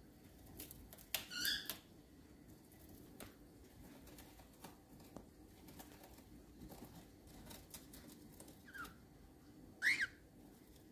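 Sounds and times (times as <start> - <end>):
bird beak rustling paper: 0.2 - 1.9, 2.6 - 9.0
cockatiel chirps: 1.2 - 1.8, 9.8 - 10.2.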